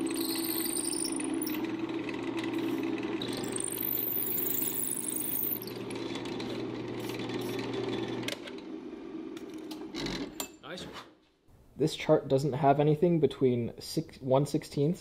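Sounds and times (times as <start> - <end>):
drill bit squealing: 0.0 - 1.7, 3.2 - 5.8
drill press motor humming: 0.0 - 10.0.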